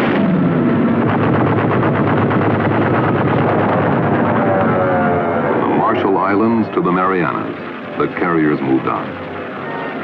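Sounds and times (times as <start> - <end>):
rapid machine-gun fire: 0.0 - 4.4
aircraft engine: 0.0 - 8.2, 9.0 - 10.0.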